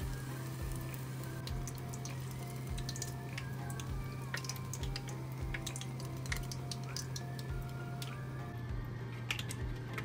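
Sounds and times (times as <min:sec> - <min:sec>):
food deep-frying in oil: 0:00.0 - 0:09.7
soft background music: 0:00.0 - 0:10.0.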